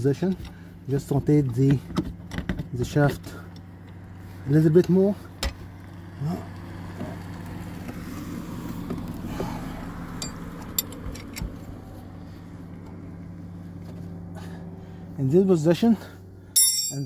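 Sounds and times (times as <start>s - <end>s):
steady low hum: 0.0s - 17.0s
light metallic clicks: 10.2s - 11.6s.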